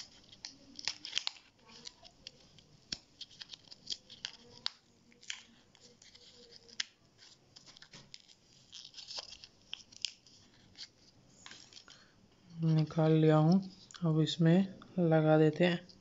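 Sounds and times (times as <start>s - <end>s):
plastic blister pack crackling: 0.0s - 12.0s.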